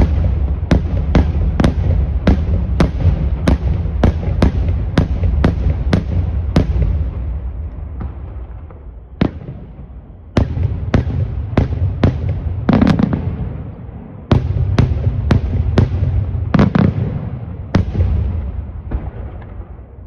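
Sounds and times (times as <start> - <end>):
fireworks bangs: 0.0 - 20.0
low rumbling echo: 0.0 - 20.0.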